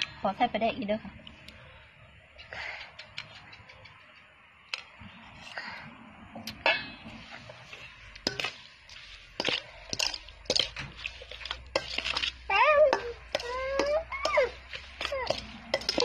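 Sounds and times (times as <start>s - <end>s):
spoon clinking in metal bowl: 11.4s - 16.0s.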